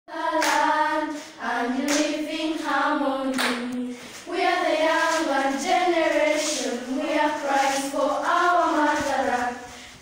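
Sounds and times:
children singing unaccompanied: 0:00.1 - 0:09.7
hand claps: 0:00.3 - 0:00.7, 0:01.8 - 0:02.2, 0:03.3 - 0:03.8.

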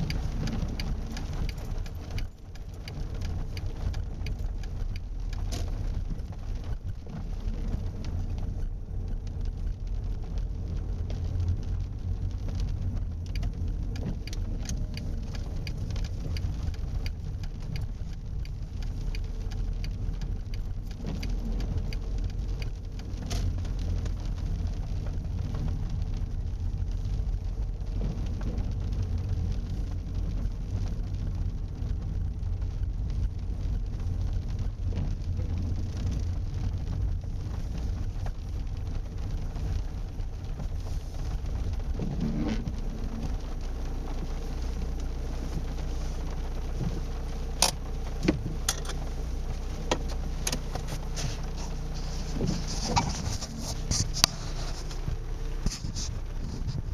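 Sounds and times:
car engine and tyre rumble: 0:00.0 - 0:56.9.

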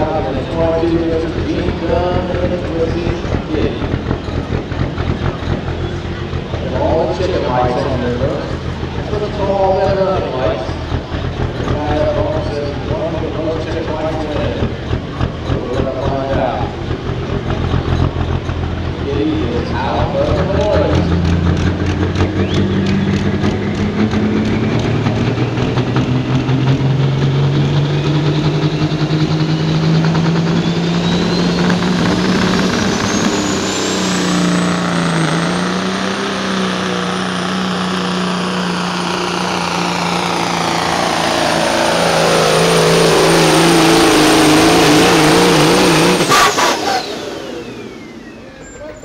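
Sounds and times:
diesel truck engine at full throttle: 0:00.0 - 0:49.0
turbo whistle: 0:22.2 - 0:23.2, 0:30.4 - 0:34.6.

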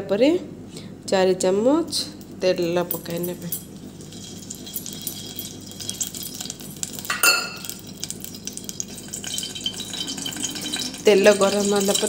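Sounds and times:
metal kitchenware clinking: 0:02.5 - 0:12.0.

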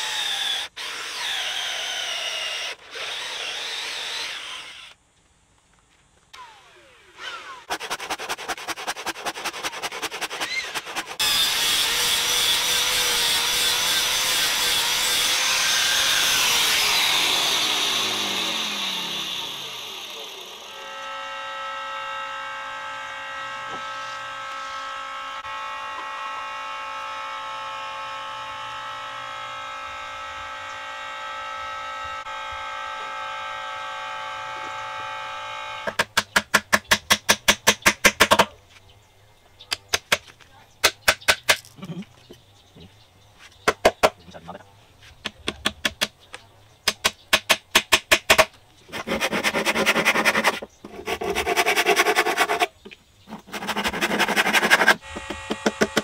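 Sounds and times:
louder power tool winding down: 0:00.0 - 0:05.0, 0:06.4 - 0:07.8, 0:10.4 - 0:35.9.

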